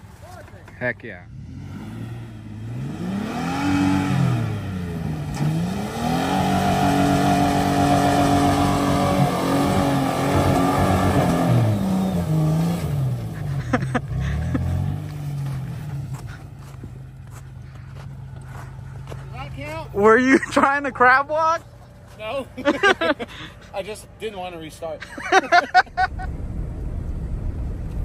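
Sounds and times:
pickup engine revving: 0:01.2 - 0:20.1.

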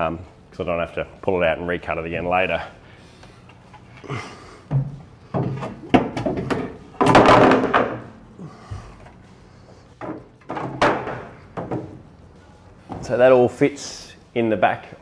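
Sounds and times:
wooden boards thumping: 0:04.7 - 0:08.1, 0:10.0 - 0:12.0.

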